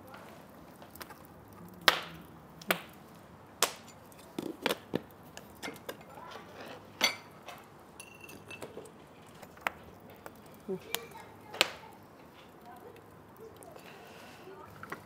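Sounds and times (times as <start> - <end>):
cookware knocking and clattering: 7.0 - 8.9.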